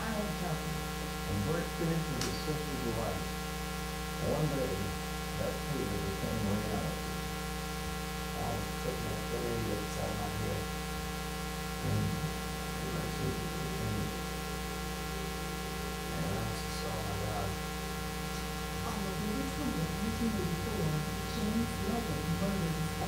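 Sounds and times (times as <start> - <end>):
faint indistinct murmur: 0.0 - 3.2, 4.2 - 7.2, 8.4 - 10.6, 11.8 - 14.4, 15.0 - 17.6, 18.2 - 23.0
electrical mains hum: 0.0 - 23.0.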